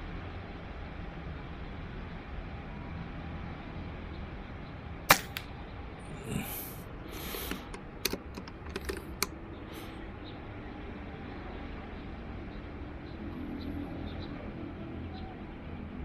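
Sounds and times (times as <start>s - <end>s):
light metallic clicks: 5.1s - 5.5s, 7.3s - 9.4s
silenced air rifle shot: 5.1s - 5.5s.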